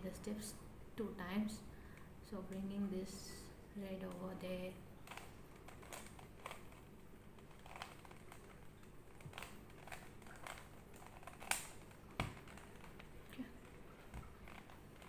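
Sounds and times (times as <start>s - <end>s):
puzzle cube clicking: 5.0s - 15.0s.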